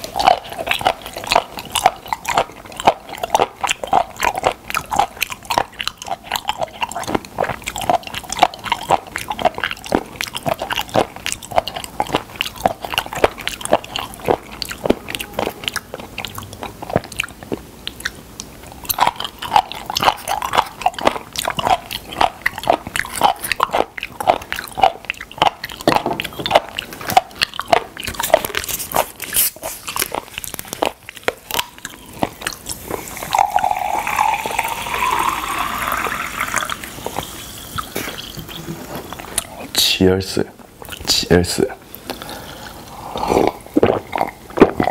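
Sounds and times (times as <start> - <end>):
wet crunchy chewing: 0.0 - 39.8, 40.8 - 44.9
drink poured into glass mug: 33.0 - 38.6.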